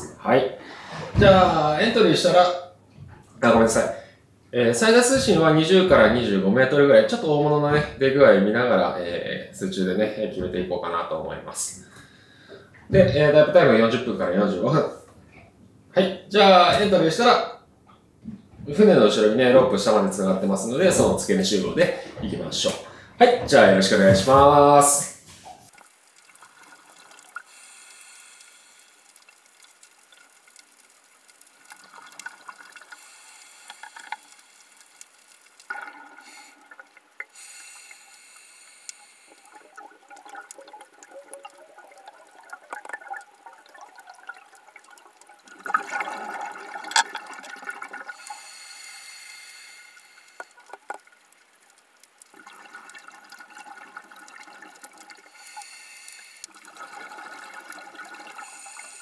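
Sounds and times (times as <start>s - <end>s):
underwater bubbling: 25.4s - 59.0s.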